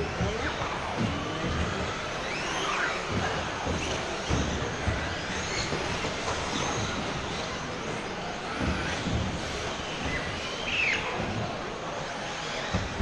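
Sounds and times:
electric motors whining: 0.0s - 13.0s.

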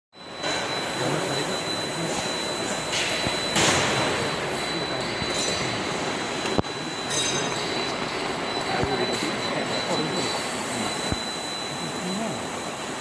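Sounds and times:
cutting drum and conveyor noise: 0.2s - 13.0s
thin high whine: 0.2s - 13.0s.

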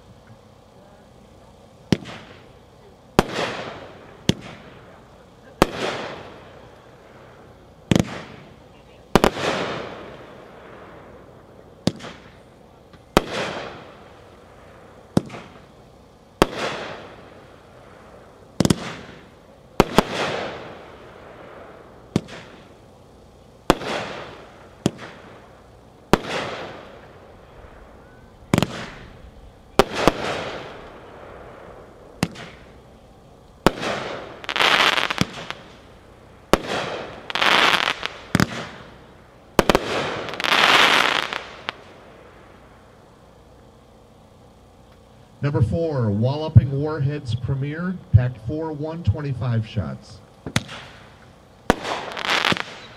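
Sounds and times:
fireworks reports: 0.0s - 52.9s
firework shells breaking: 33.5s - 42.0s, 50.4s - 52.9s.

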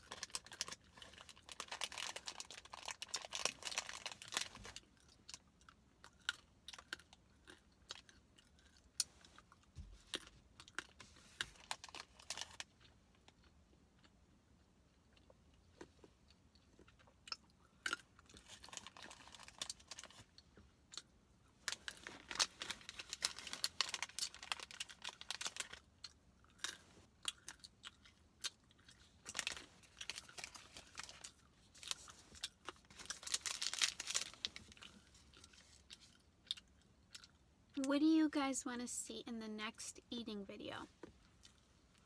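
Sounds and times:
plastic wrapper crinkling: 0.0s - 4.8s, 11.4s - 12.7s, 18.4s - 20.2s, 21.6s - 25.9s, 29.2s - 36.2s
chewing and crunching snack: 0.0s - 37.8s, 41.0s - 42.0s.

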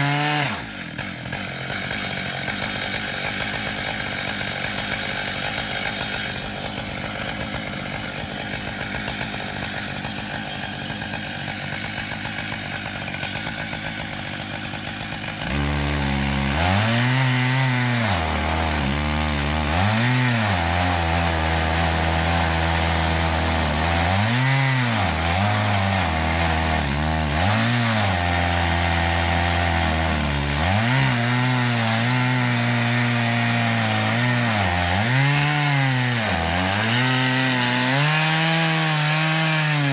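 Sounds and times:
chainsaw cutting log: 0.0s - 39.9s.

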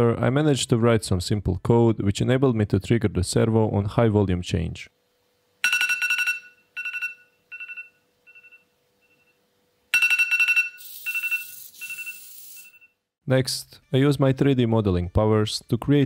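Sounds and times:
pulsing two-tone phone alarm: 5.6s - 13.0s.

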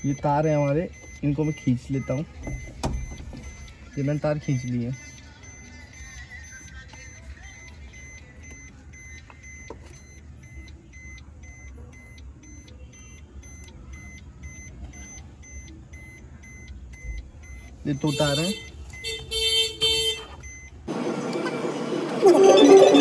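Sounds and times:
car warning chime beeping: 0.0s - 23.0s.

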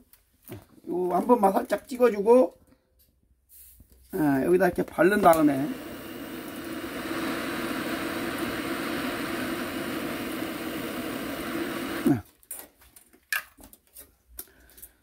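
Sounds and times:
gas torch hissing: 4.2s - 12.2s.

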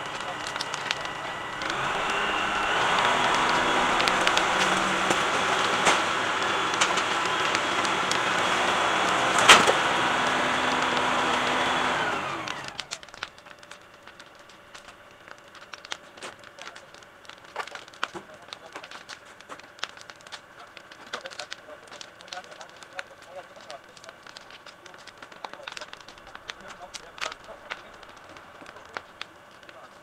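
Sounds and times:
tractor diesel engine running: 0.0s - 16.1s.

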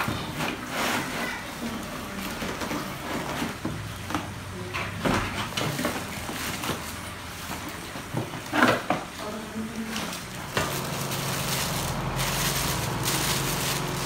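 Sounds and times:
cardboard packaging scraping: 0.0s - 3.6s, 5.7s - 14.0s
plastic bags crinkling: 5.6s - 14.0s.

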